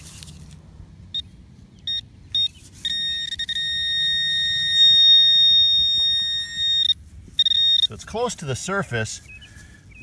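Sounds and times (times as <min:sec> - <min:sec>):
short high beeps: 0:01.9 - 0:08.0
steady high tone: 0:01.9 - 0:08.5.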